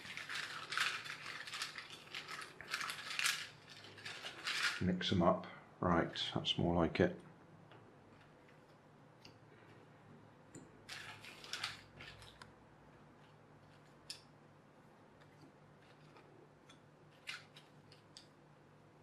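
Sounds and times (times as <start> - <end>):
puzzle pieces clattering: 0.0 - 4.8, 10.9 - 12.4
puzzle pieces clicking and rustling: 0.0 - 4.8, 10.9 - 12.4.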